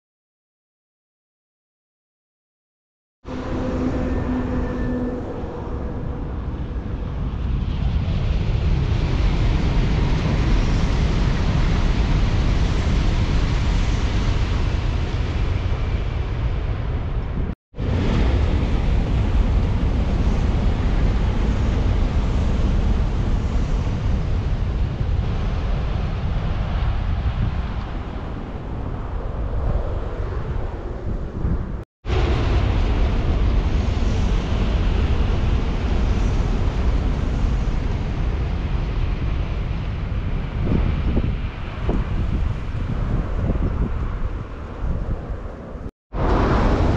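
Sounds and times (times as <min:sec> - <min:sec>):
train rushing rumble: 0:03.3 - 0:30.4, 0:31.5 - 0:46.9
wind buffeting microphone: 0:03.3 - 0:46.9.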